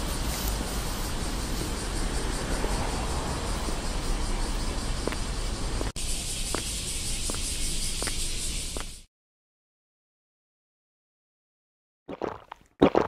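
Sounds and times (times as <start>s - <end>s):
rushing noise with low rumble: 0.0s - 8.8s.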